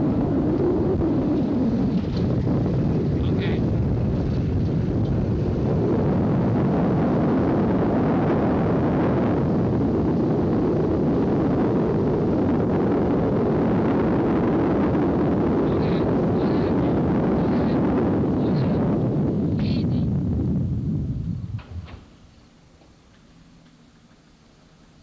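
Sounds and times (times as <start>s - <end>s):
vehicle engine and road noise: 14.7s - 25.0s.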